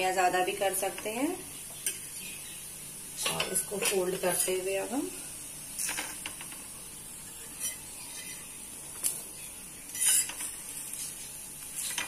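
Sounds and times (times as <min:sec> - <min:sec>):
faint sizzle from griddle: 0:00.0 - 0:12.0
steel spatula scraping griddle: 0:05.7 - 0:06.2, 0:07.2 - 0:08.6, 0:09.9 - 0:12.0.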